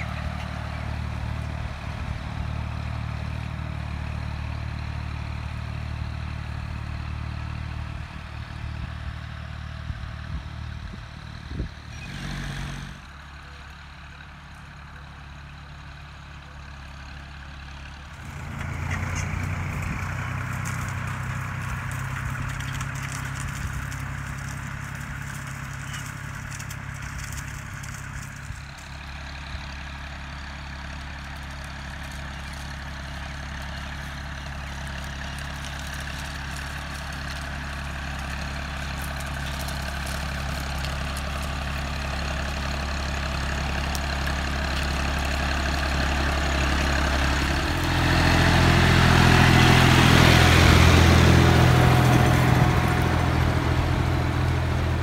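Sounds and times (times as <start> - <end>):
tractor diesel engine running: 0.0 - 55.0
plough discs scraping earth: 11.9 - 13.0, 18.2 - 29.0, 31.2 - 48.4.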